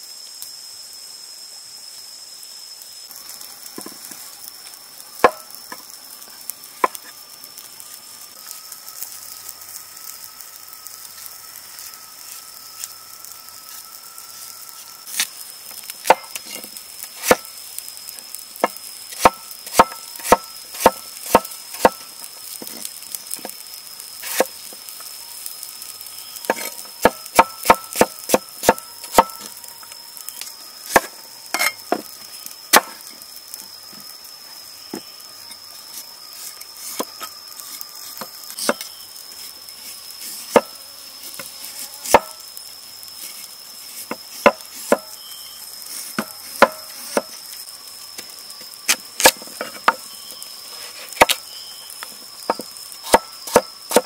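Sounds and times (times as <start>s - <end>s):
cleaver chopping on wooden board: 5.2s - 5.4s
steady high tone: 7.8s - 15.4s.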